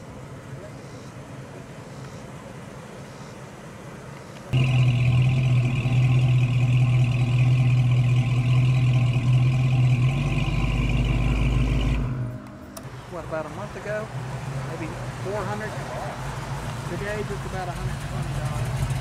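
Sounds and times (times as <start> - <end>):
car engine idling: 3.9 - 19.0.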